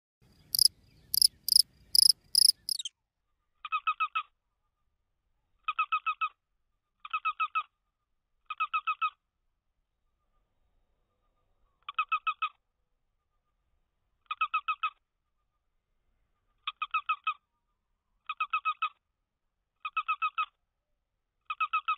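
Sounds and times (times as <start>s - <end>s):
shrill chirps: 0.5s - 2.9s.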